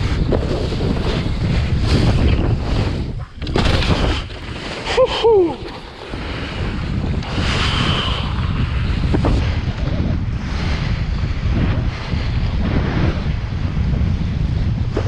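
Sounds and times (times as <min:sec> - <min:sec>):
wind buffeting microphone: 0:00.0 - 0:15.0
board hissing across water: 0:04.0 - 0:13.5.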